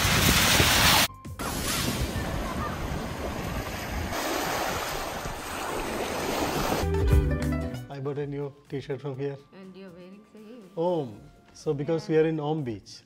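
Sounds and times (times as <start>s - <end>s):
ocean surf breaking: 0.0s - 6.9s.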